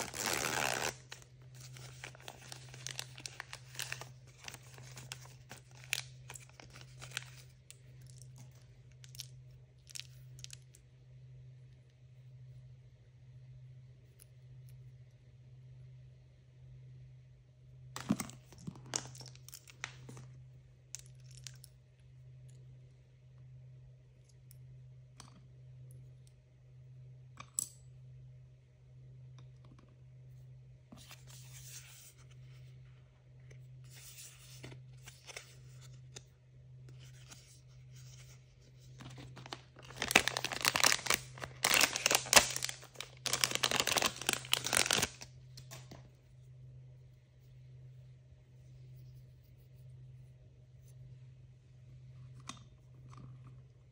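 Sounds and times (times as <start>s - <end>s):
packaging tearing: 0.0s - 7.4s, 39.0s - 45.3s
faint low hum: 0.0s - 53.9s
packaging rustling and tapping: 39.0s - 45.1s.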